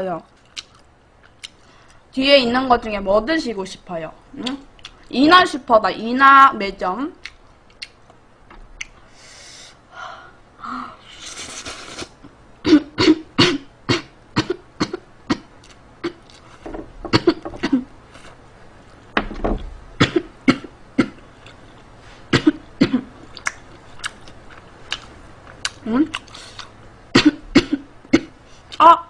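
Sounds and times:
sharp inhale: 9.0s - 11.5s
woman coughing hard: 12.6s - 15.4s, 17.1s - 17.9s, 20.0s - 21.2s, 22.3s - 23.1s, 27.2s - 28.3s.

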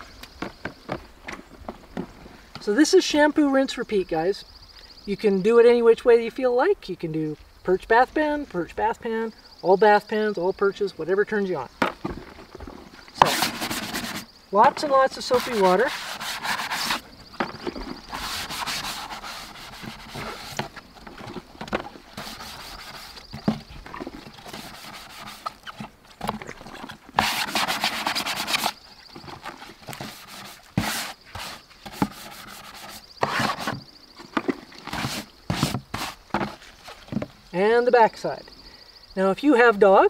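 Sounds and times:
brush scrubbing plastic: 13.2s - 33.8s, 34.4s - 37.2s.

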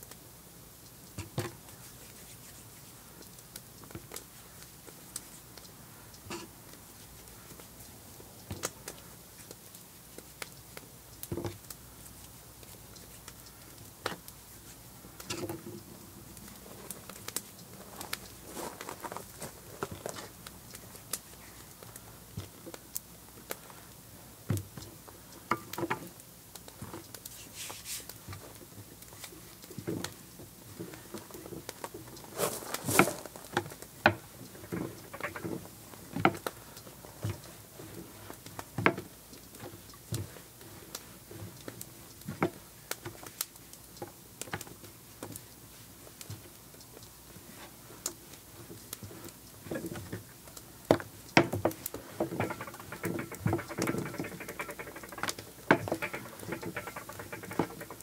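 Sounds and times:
rolling pin knocking on table: 34.6s - 35.5s, 52.2s - 58.0s.

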